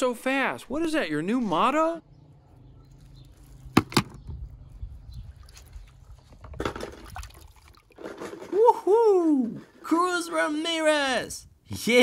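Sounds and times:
water splashing in a tub: 5.4s - 8.2s.

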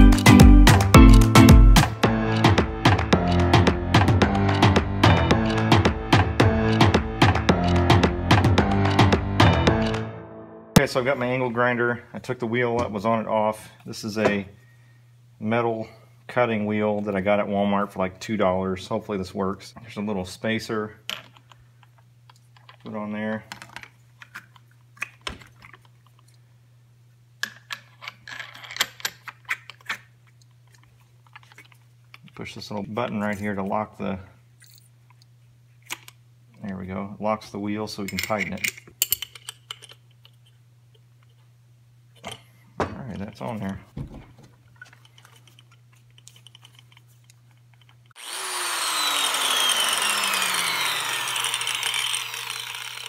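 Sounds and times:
small metal parts clinking: 27.4s - 30.0s, 38.1s - 40.6s, 44.8s - 48.1s
angle grinder whine: 48.2s - 53.0s.

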